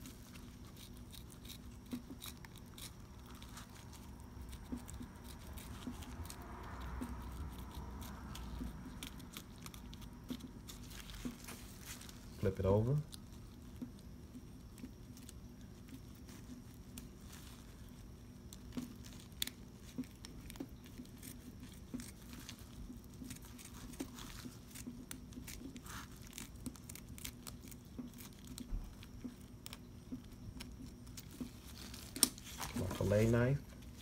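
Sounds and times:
blade scratching and clicking on fish: 0.0 - 12.0
low steady hum: 0.0 - 34.0.

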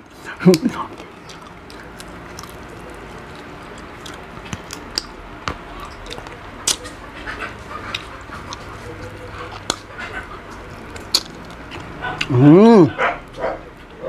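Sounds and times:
chewing and mouth noises: 0.0 - 14.0.

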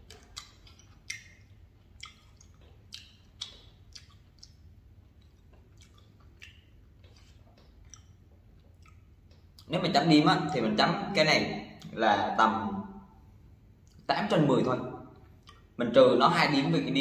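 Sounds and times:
mouth clicks of chewing: 0.0 - 9.7, 13.8 - 14.1, 15.2 - 15.8.

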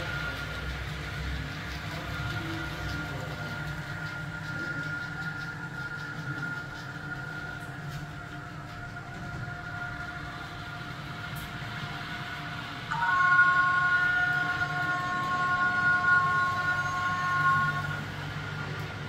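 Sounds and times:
model train rumbling: 0.0 - 19.0
chord of steady tones: 9.2 - 19.0.

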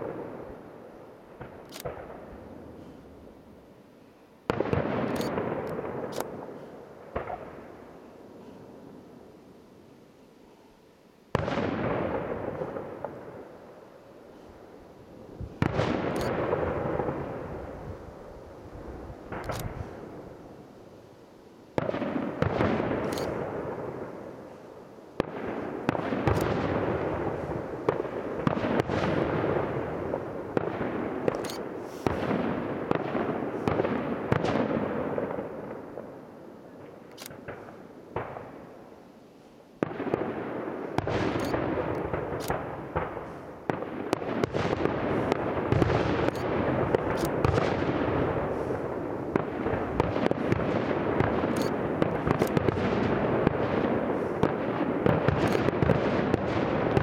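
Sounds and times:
fireworks bursting and crackling: 0.0 - 3.3, 4.4 - 9.0, 11.3 - 20.9, 21.7 - 57.0.

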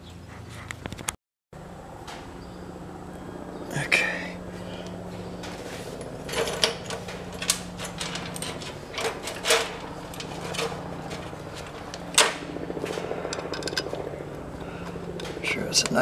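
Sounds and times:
steady low hum: 0.0 - 16.0
metal hardware clicking: 13.3 - 13.9.

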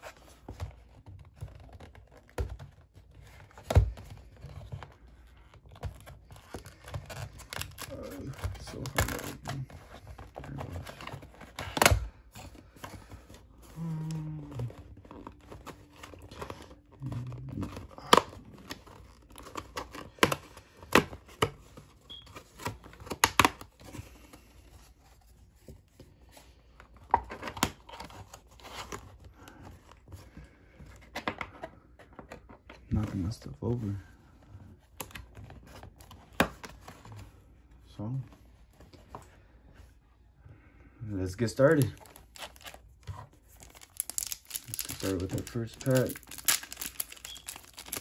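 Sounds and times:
cardboard tearing and rustling: 0.0 - 26.2, 26.8 - 30.1, 41.6 - 48.0.

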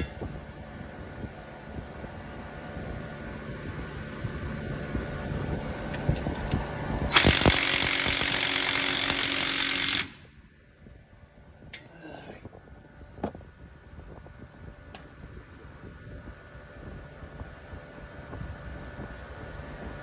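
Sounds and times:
impact wrench rattling: 7.1 - 10.2.

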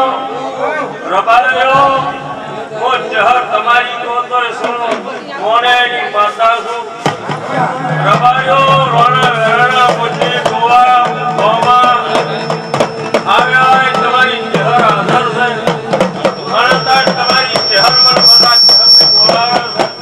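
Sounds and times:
drum beats: 1.6 - 3.6, 4.5 - 5.3, 6.9 - 20.0
steady held tones: 7.7 - 20.0
man singing through a microphone: 7.9 - 12.5, 13.2 - 19.8.

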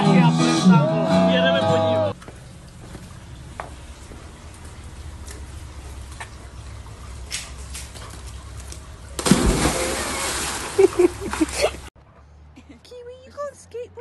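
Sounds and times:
churning water: 2.1 - 11.9
dog splashing into pool: 5.2 - 11.8.

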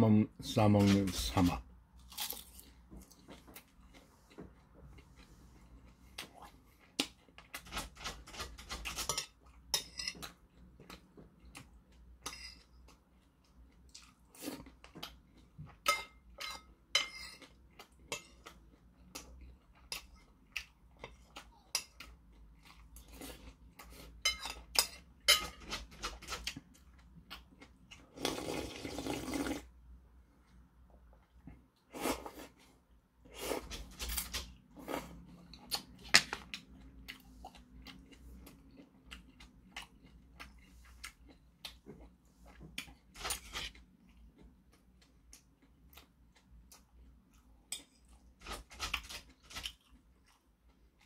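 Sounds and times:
spoon clinking on porcelain bowls: 9.0 - 10.4
slurping: 28.1 - 29.7.

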